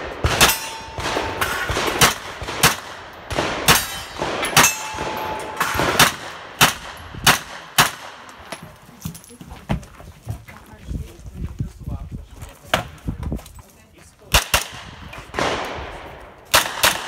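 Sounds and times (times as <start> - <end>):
gunshots: 0.0 - 8.5, 14.3 - 17.0
bullets ringing steel targets: 0.2 - 8.6.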